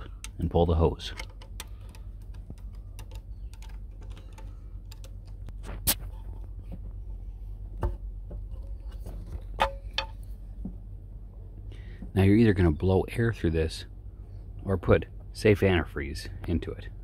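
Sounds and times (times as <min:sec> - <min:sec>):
small irregular clicks: 0:00.0 - 0:00.5, 0:01.1 - 0:05.6
steady low hum: 0:00.0 - 0:17.0.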